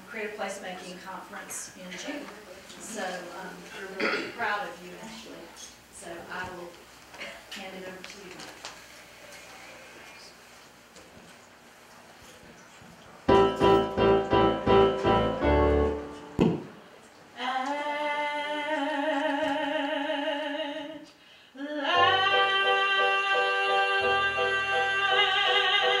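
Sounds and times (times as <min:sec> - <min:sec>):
electronic keyboard chords: 0:13.3 - 0:16.4
woman singing with vibrato: 0:17.4 - 0:26.0.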